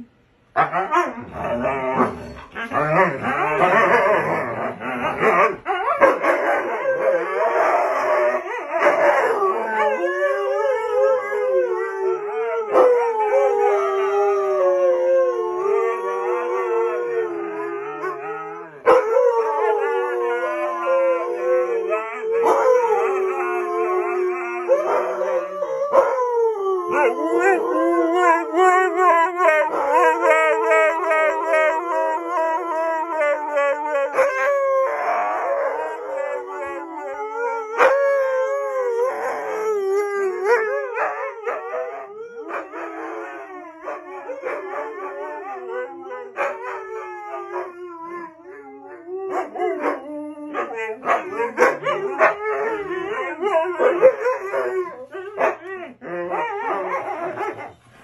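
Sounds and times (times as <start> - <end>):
dogs howling together: 0.6 - 57.9.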